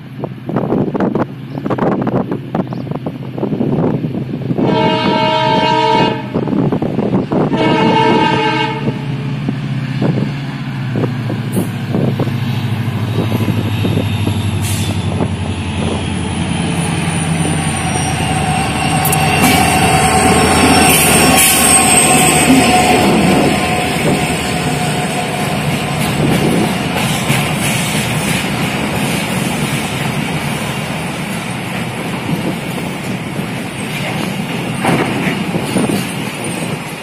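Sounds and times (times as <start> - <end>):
locomotive engine rumbling: 0.0 - 37.0
locomotive horn blasts: 4.6 - 6.5, 7.4 - 9.2, 17.9 - 25.6.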